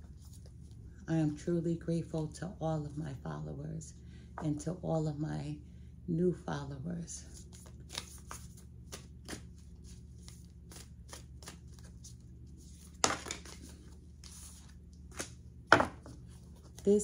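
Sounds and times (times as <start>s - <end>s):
cards being shuffled: 7.4s - 16.8s.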